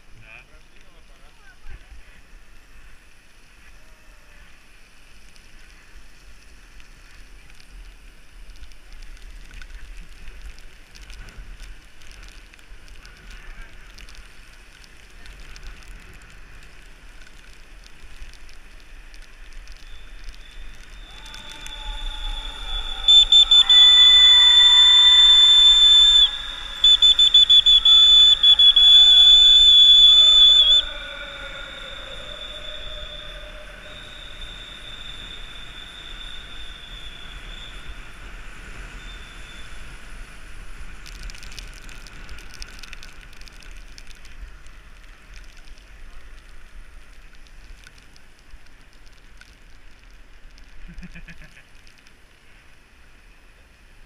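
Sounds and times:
bicycle tyres on wet asphalt: 0.0 - 54.0
faint whistle tone: 18.7 - 40.4
trilling pea whistle blasts: 19.7 - 40.0.

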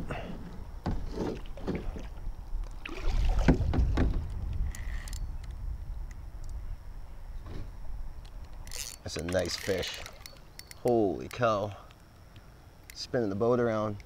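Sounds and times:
wind rumble on microphone: 0.0 - 8.9
water sloshing: 0.9 - 4.9, 8.6 - 11.4
plastic kayak hull knocking: 3.4 - 4.2.

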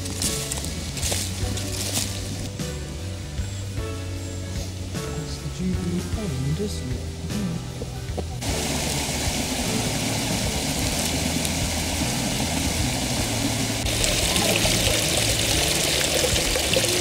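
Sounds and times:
stream splashing over stones: 8.4 - 17.0.

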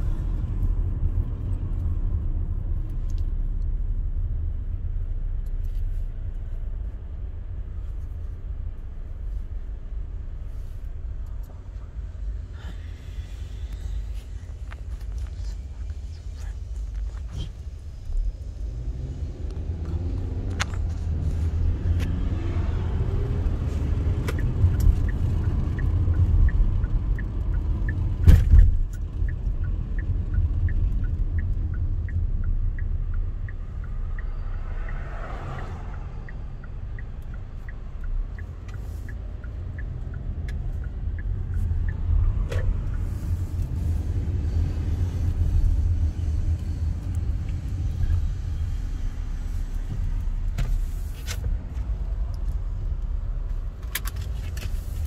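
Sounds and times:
engine and road noise: 0.0 - 55.0
light regular ticking: 23.0 - 44.4.

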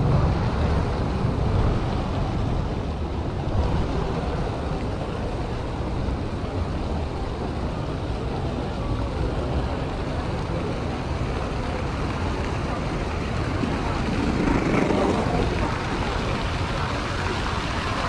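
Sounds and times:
low rumble: 0.0 - 7.4
fountain water splashing: 0.0 - 18.0
wind on microphone: 0.0 - 18.0.

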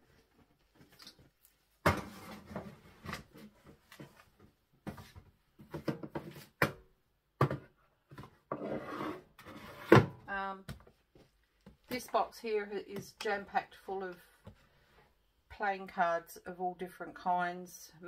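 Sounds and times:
boxes knocking on wooden shelves: 7.4 - 8.4
box scraping on shelf: 8.5 - 10.2.

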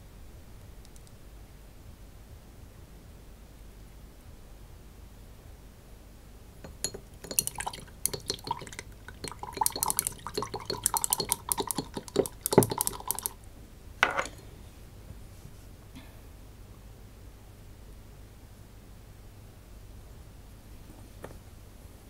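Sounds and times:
stick clinking in glass jar: 6.7 - 13.4, 14.0 - 14.4.

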